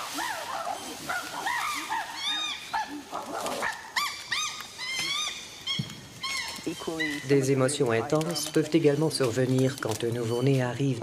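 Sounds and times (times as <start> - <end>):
chimpanzees calling excitedly: 0.0 - 7.7.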